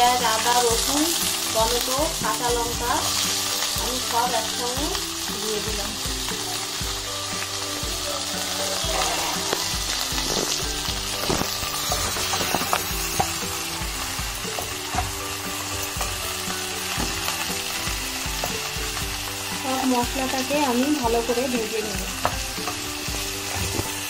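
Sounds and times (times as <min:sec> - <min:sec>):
vegetables sizzling in hot oil: 0:00.0 - 0:24.0
wooden spatula scraping a pan: 0:08.8 - 0:13.4.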